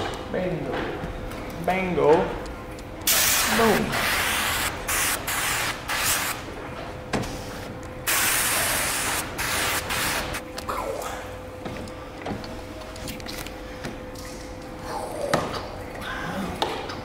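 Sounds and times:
spray wand hissing bursts: 3.1s - 6.4s, 8.1s - 10.4s.

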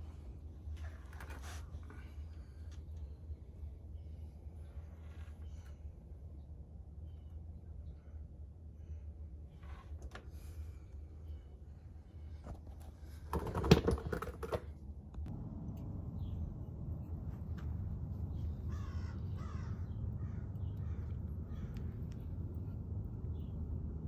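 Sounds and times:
low outdoor rumble: 0.0s - 24.0s
clatter of knocks and clicks: 13.3s - 14.8s
harsh caws: 18.7s - 21.9s.

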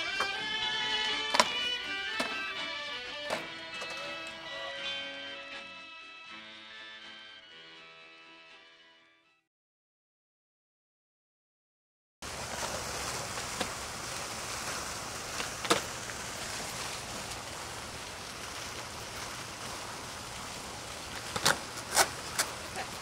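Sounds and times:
skateboard clacking on concrete: 0.0s - 4.6s, 15.4s - 16.0s, 21.2s - 23.0s
skateboard rolling hiss: 12.2s - 23.0s.

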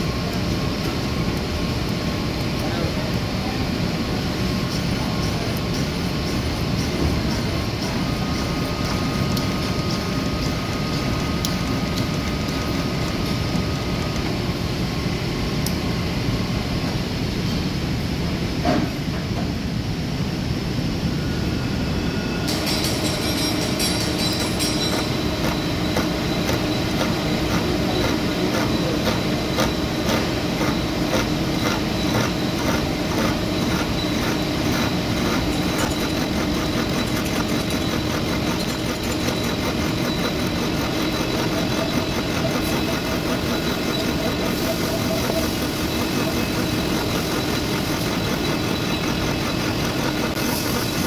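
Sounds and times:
milling machine drone: 0.0s - 16.8s, 21.1s - 51.0s
fast even ticking of cutting: 22.7s - 51.0s.

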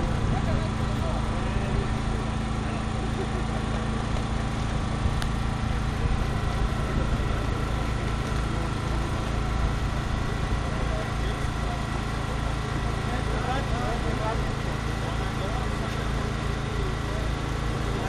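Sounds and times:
engine idling: 0.0s - 18.0s.

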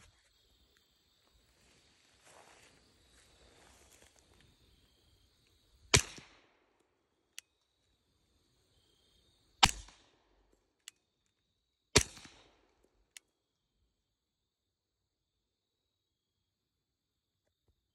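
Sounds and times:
suppressed pistol shots: 5.9s - 6.5s, 9.6s - 10.1s, 12.0s - 12.6s.

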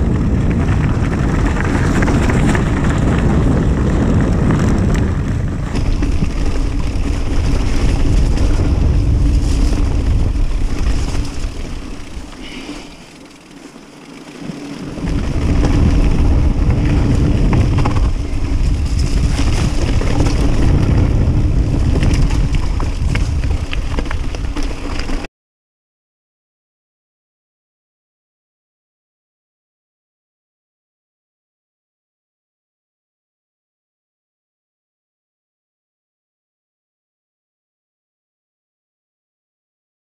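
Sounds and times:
wind buffeting microphone: 0.0s - 12.6s, 14.5s - 25.3s
bike tyres clattering on stones: 0.0s - 25.3s.

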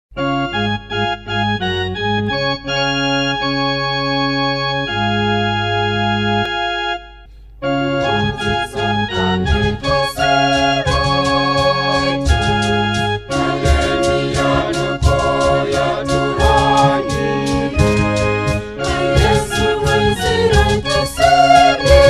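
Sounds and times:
keyboard melody lines: 0.1s - 22.0s
organ-style keyboard chords: 0.1s - 22.0s
drum beat: 9.5s - 22.0s.

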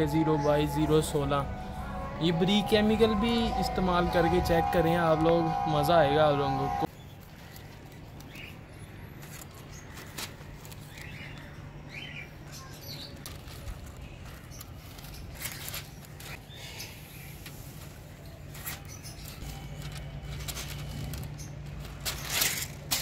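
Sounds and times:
paper kite rustling and crinkling: 6.8s - 11.7s, 12.6s - 23.0s.

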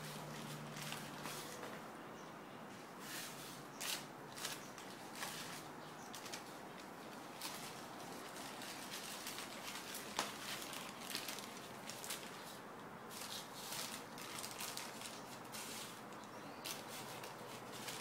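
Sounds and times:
plastic bag crinkling: 3.8s - 18.0s.

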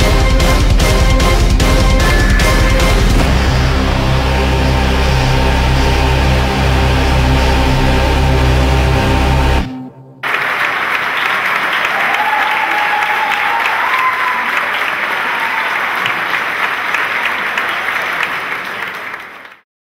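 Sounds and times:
audience applauding: 2.0s - 3.4s, 10.2s - 19.6s
long held note: 2.0s - 10.2s.

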